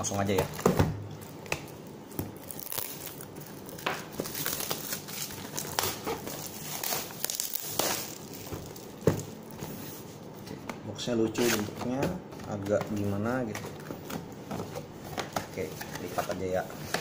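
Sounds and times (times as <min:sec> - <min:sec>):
plastic shrink wrap crinkling: 0:00.1 - 0:09.6.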